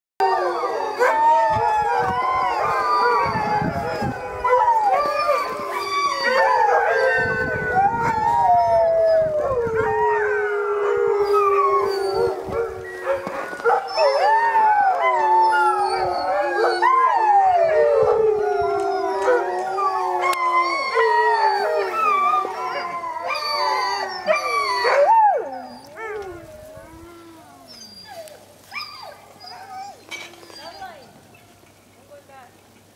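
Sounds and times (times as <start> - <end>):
long low dog howl: 0.2 - 28.4
dogs howling together: 0.2 - 31.1.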